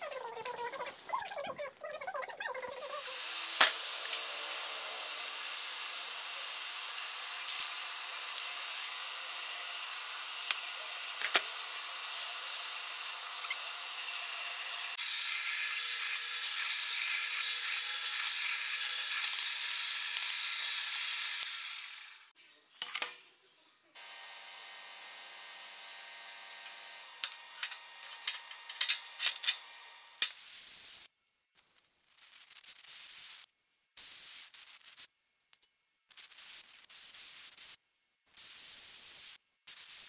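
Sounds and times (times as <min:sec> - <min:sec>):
workshop hiss: 0:02.8 - 0:22.3
drill press boring into wood: 0:03.4 - 0:22.3.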